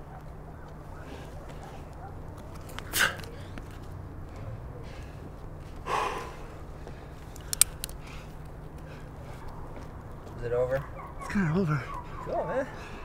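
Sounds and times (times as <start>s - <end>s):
sharp breaths of effort: 2.8s - 3.6s, 4.4s - 9.8s, 11.8s - 13.0s.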